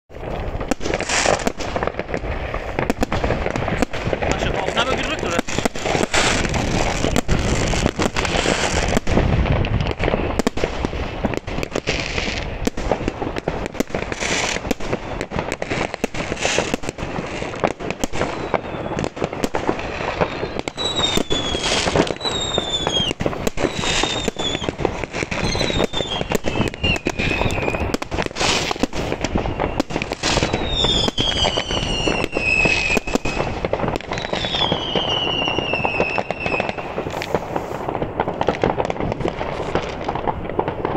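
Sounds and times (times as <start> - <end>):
fireworks bangs and crackles: 0.1 - 40.9
firework whistles falling in pitch: 4.6 - 9.1, 18.0 - 37.8.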